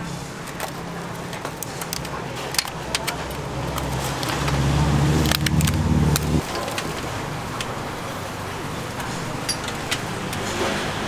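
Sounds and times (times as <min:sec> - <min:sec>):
vehicle engine humming: 0:00.0 - 0:11.0
plastic food boxes clicking: 0:00.4 - 0:04.6.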